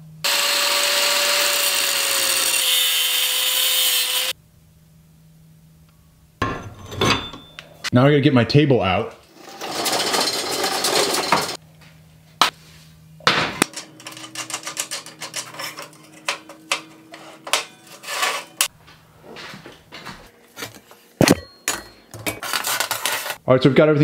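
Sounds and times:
metal clicks and clanks: 13.6s - 17.8s.

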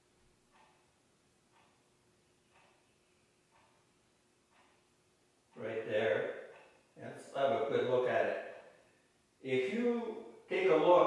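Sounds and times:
soft repeating sound: 0.0s - 7.7s
low steady hum: 0.0s - 11.0s.

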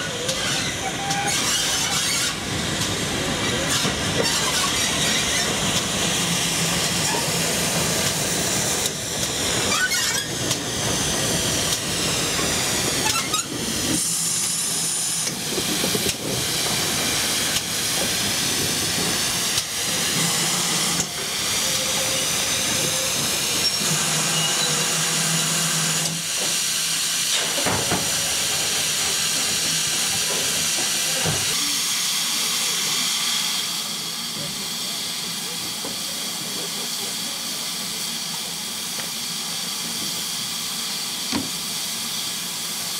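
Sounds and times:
steam hissing from locomotive: 0.0s - 42.9s.

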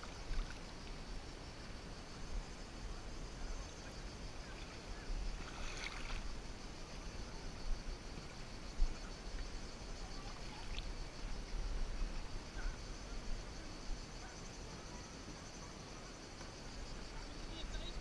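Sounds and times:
muffled kayak paddling: 0.0s - 18.0s
water splash: 4.6s - 6.4s.

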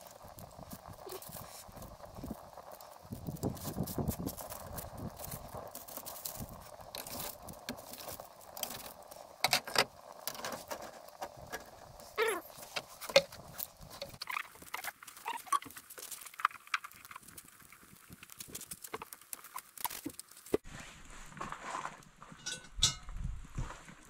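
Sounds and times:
fire crackling: 0.0s - 24.0s
wire grill grate clattering: 22.3s - 23.2s
metal tongs clinking: 22.4s - 23.1s.

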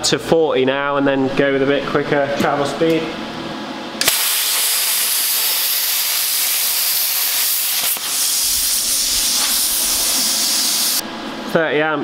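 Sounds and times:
plasma cutter hissing: 4.0s - 11.0s.

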